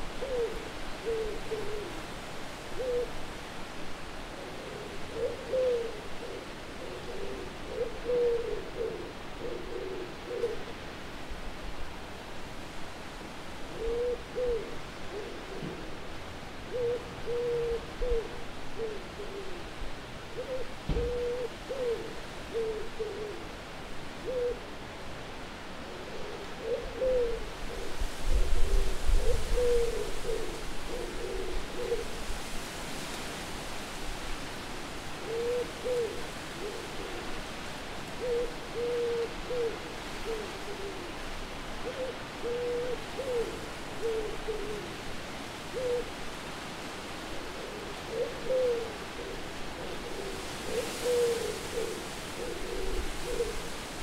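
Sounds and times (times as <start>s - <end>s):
wind hiss: 0.0s - 54.0s
owls hooting: 47.6s - 53.9s.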